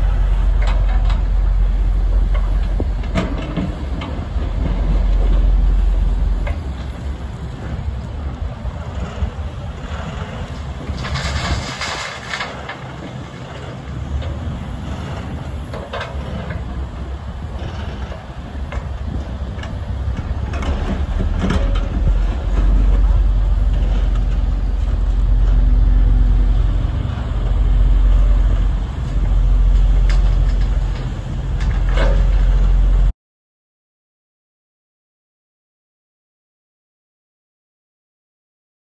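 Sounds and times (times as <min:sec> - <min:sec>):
excavator diesel engine under load: 0:00.0 - 0:33.1
truck engine running: 0:00.0 - 0:33.1.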